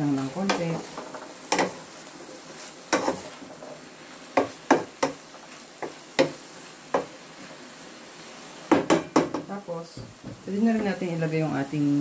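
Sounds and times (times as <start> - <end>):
faint sizzle: 0.0 - 12.0
wooden spatula knocking pan: 4.4 - 5.2, 5.8 - 7.1, 8.7 - 11.0.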